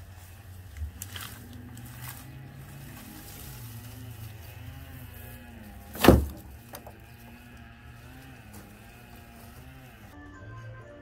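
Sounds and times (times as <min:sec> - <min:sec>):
steady low hum: 0:00.0 - 0:10.2
brush thumping into plastic cart: 0:05.8 - 0:07.0.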